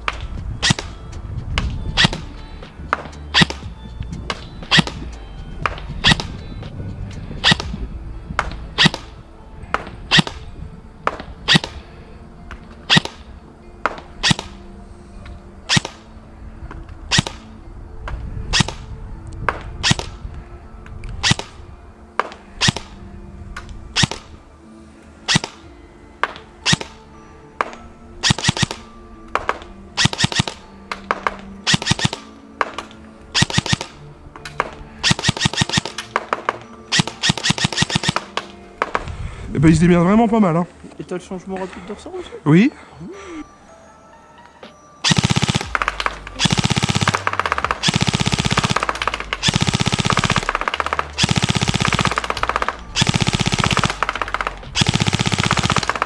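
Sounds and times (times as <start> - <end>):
background music: 0.0 - 56.0
airsoft gun shots: 5.7 - 6.4, 7.4 - 7.8, 9.8 - 10.4, 11.0 - 11.8, 12.9 - 13.2, 15.7 - 16.0, 21.2 - 21.6, 22.2 - 22.9, 24.0 - 24.3, 25.3 - 25.6, 27.6 - 28.8, 29.4 - 34.0, 34.6 - 39.1, 45.1 - 56.0.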